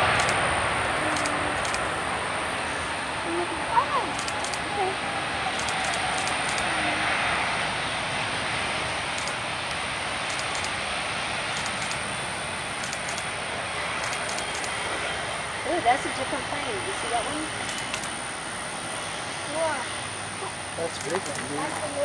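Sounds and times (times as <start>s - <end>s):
jet engines at takeoff thrust: 0.0s - 22.0s.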